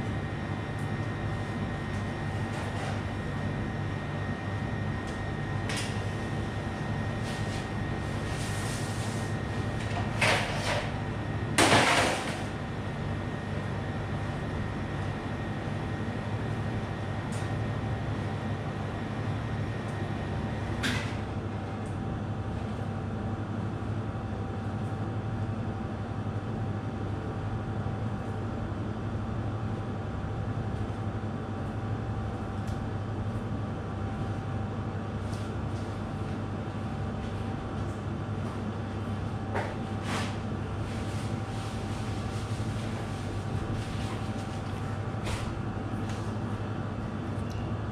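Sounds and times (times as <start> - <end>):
kitchen machinery hum: 0.0 - 47.9.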